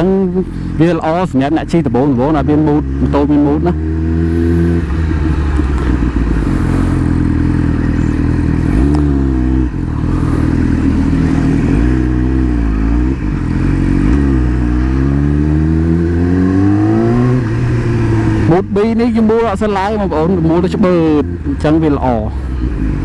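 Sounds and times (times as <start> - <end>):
motorcycle engine revving: 0.0 - 23.0.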